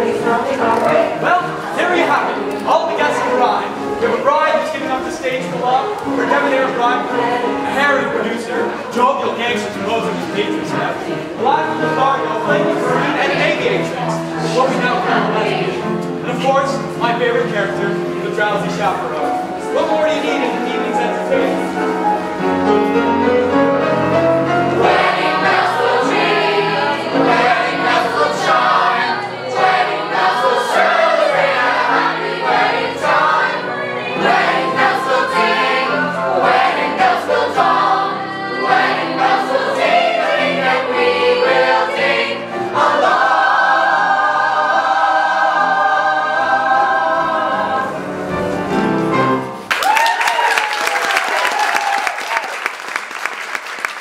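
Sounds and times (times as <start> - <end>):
chorus singing with accompaniment: 0.0 - 49.5
audience member whooping: 49.7 - 52.6
audience applause: 49.7 - 54.0.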